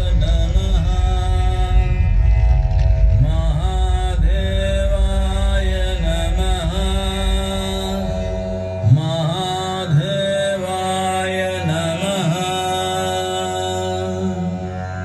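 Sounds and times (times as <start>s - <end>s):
chanted devotional melody: 0.0s - 15.0s
steady low drone: 0.0s - 15.0s.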